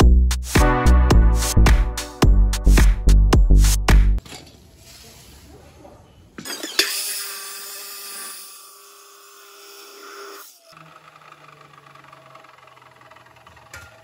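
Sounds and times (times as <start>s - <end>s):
saw motor whine: 6.4s - 14.0s.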